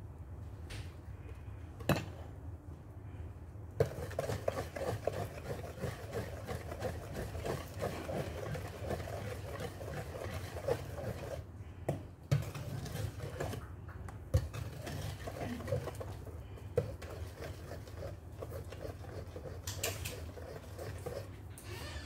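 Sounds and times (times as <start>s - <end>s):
whisk scraping a metal pot: 3.8s - 11.5s, 12.3s - 13.6s, 14.3s - 21.5s.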